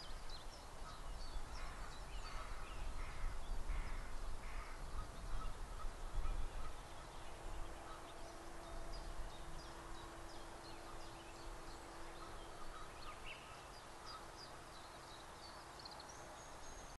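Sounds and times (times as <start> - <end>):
faint steady hum: 0.0 - 16.9
distant geese honking: 0.8 - 14.4.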